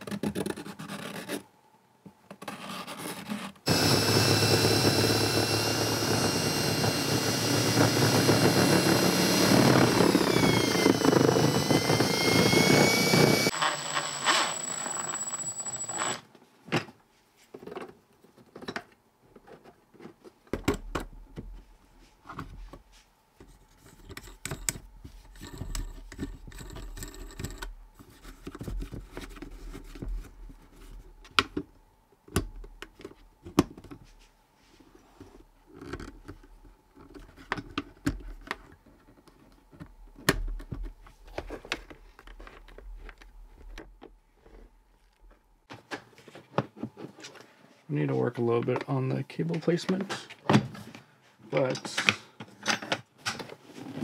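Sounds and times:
cordless drill whining: 0:03.7 - 0:16.2.

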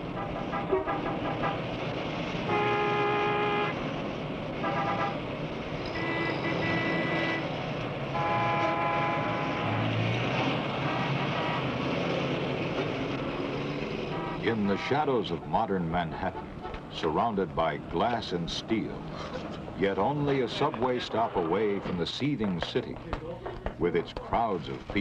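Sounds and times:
car horns honking: 0:00.0 - 0:01.8, 0:02.4 - 0:03.8, 0:04.6 - 0:11.8, 0:14.0 - 0:17.0
traffic roar: 0:00.0 - 0:25.0.

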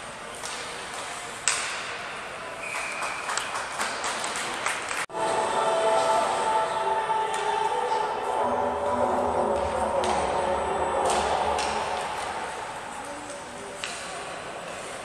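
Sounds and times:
arena hubbub: 0:00.0 - 0:15.0
hockey sticks and pucks clacking: 0:00.3 - 0:04.6, 0:09.5 - 0:15.0
music: 0:05.1 - 0:13.3
short high steady tone: 0:05.1 - 0:13.8.

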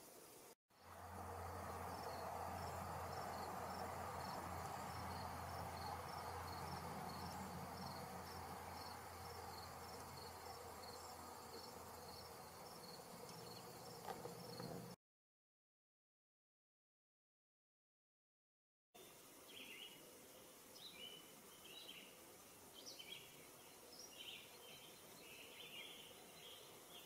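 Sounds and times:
low outdoor background: 0:00.0 - 0:15.0
cricket chirping: 0:00.8 - 0:15.0.

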